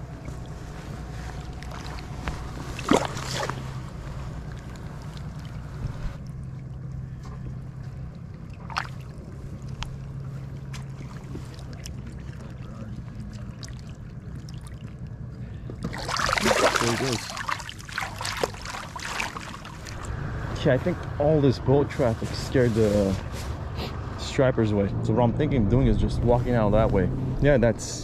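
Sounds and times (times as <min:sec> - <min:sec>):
fish splashing: 0:00.0 - 0:15.1, 0:15.8 - 0:20.1
water sloshing at shoreline: 0:00.0 - 0:20.1
distant motorboat engine drone: 0:00.0 - 0:28.0.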